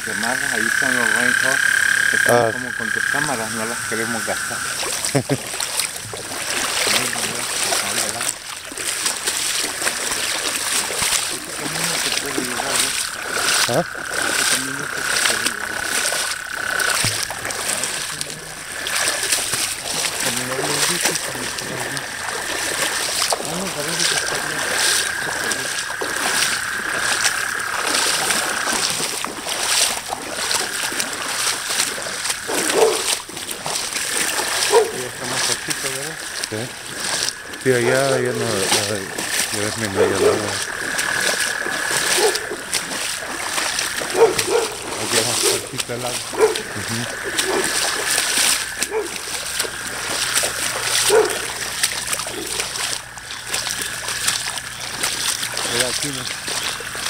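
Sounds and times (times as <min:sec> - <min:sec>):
thin steady high tone: 0:00.0 - 0:05.0
feet splashing through water: 0:00.0 - 0:57.0.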